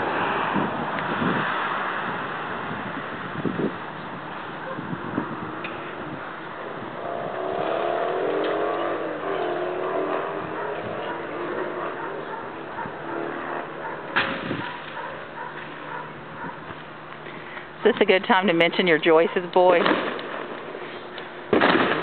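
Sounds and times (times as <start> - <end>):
vehicle engine passing: 5.0 - 17.1.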